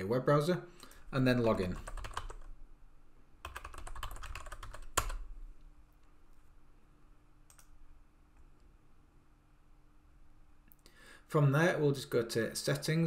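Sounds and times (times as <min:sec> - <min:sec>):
typing on computer keyboard: 0:01.4 - 0:02.5, 0:03.4 - 0:05.2.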